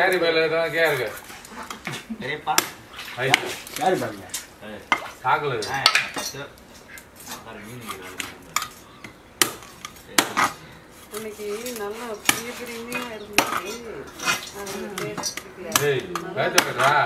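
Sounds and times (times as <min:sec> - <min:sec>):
cleaver chopping fish on wood: 0:09.4 - 0:10.6, 0:15.7 - 0:17.0.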